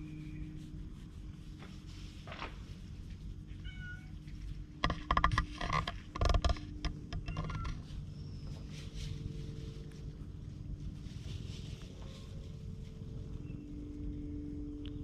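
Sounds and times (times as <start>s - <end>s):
cat meowing: 3.6s - 4.2s.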